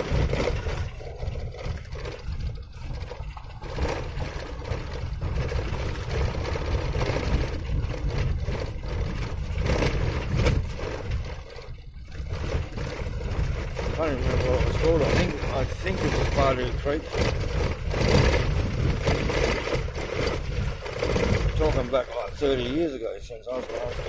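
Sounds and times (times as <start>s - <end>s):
knocks and rattles in car cabin: 0.0s - 22.7s
car tyres and engine rumble: 0.0s - 24.0s.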